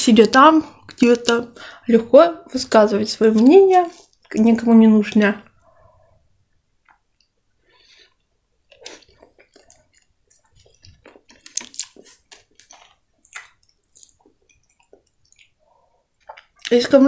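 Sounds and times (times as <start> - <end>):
person chewing wetly: 6.8 - 16.8.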